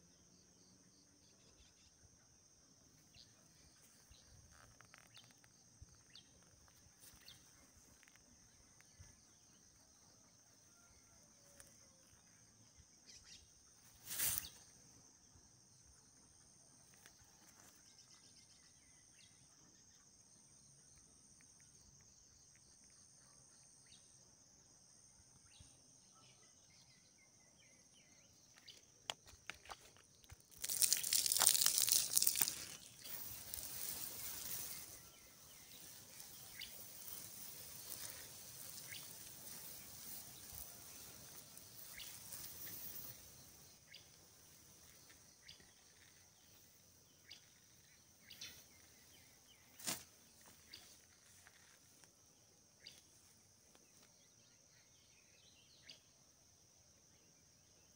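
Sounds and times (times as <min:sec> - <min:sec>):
short rustle: 0:14.0 - 0:14.6
high-pitched insect drone: 0:30.2 - 0:52.1
rushing hiss: 0:30.5 - 0:45.5.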